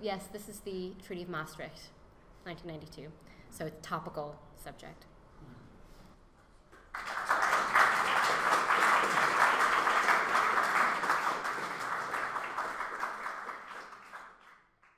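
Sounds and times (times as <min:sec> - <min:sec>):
audience applauding: 0:06.9 - 0:14.9.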